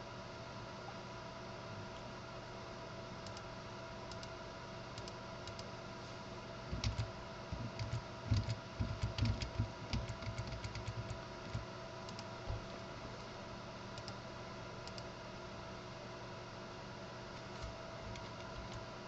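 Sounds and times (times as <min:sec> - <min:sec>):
keyboard keys tapping: 0:06.7 - 0:12.6, 0:18.0 - 0:18.8.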